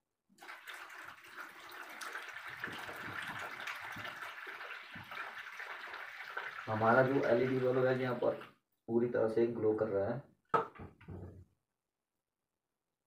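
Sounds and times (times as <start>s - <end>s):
water pouring into a plastic tub: 0.3s - 8.6s.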